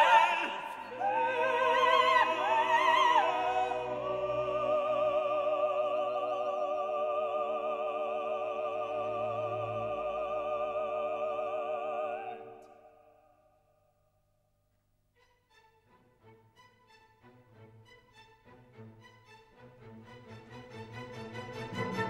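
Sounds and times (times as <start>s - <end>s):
singers with orchestra: 0.0s - 13.2s.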